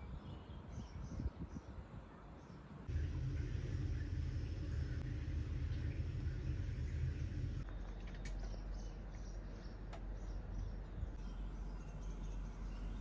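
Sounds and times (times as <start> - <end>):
low rumble: 2.9 - 7.6.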